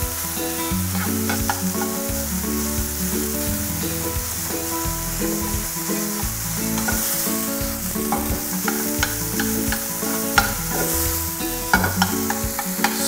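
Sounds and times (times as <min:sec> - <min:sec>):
mince sizzling in a pan: 0:00.0 - 0:13.0
metal spoon scraping a pan: 0:11.7 - 0:13.0.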